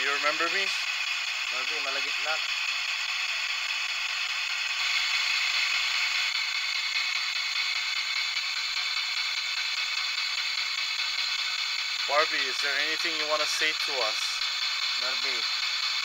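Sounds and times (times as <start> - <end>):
radio static hiss: 0.0 - 16.0.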